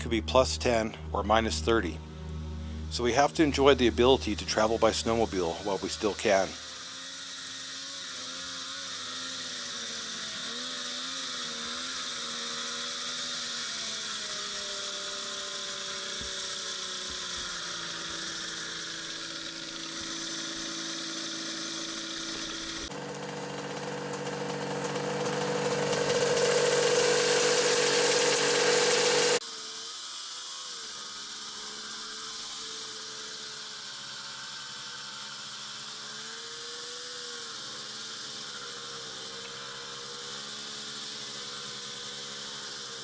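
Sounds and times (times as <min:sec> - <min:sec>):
snowmobile engine running: 0:00.0 - 0:29.4.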